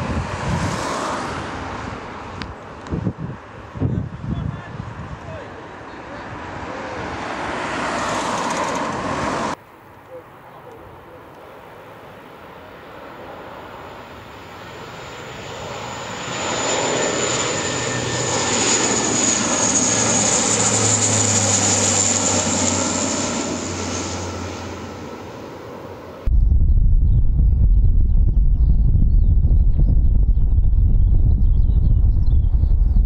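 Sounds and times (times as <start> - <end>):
turboprop aircraft passing overhead: 0.0 - 9.6, 10.2 - 26.3.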